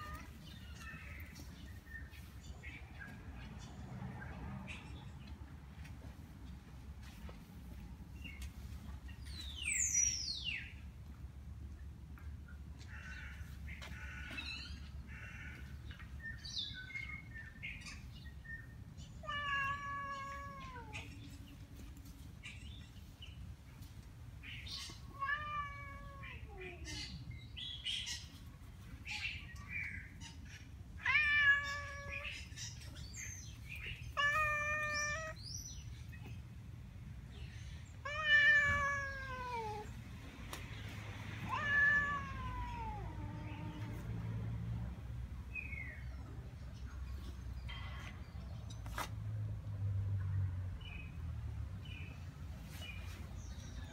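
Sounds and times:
cat meowing angrily: 19.2 - 21.1, 25.1 - 26.9, 31.0 - 32.4, 34.1 - 35.4, 38.0 - 39.9, 41.4 - 44.0.

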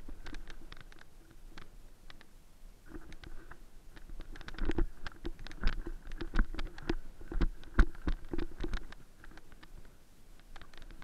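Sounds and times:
knocks clicks and rustles of movement: 2.9 - 11.0.

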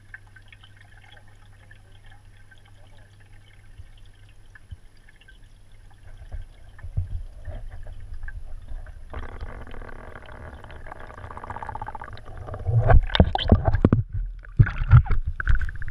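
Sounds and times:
steady hum: 0.0 - 15.9
muffled underwater rumble: 5.9 - 15.9
water splashing and knocking: 6.0 - 15.9.

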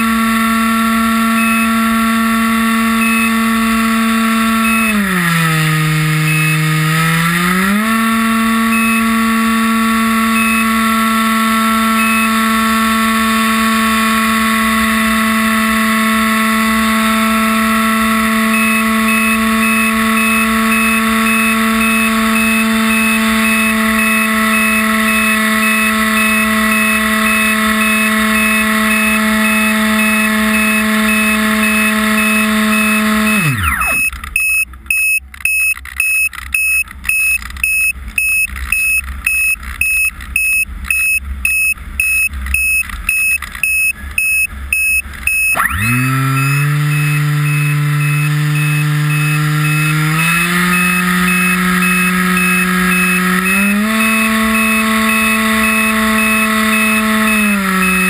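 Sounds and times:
model aircraft motor whining: 0.0 - 35.0, 42.3 - 58.0
high electronic beep: 1.3 - 1.8, 3.0 - 3.5, 4.6 - 5.1, 6.1 - 7.0, 8.6 - 9.2, 10.3 - 10.8, 12.0 - 12.4, 18.5 - 58.0.

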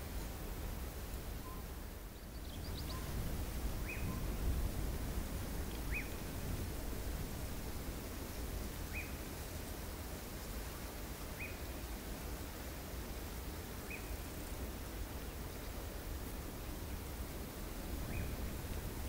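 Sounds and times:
wind rumble on microphone: 0.0 - 10.0, 15.7 - 19.0.

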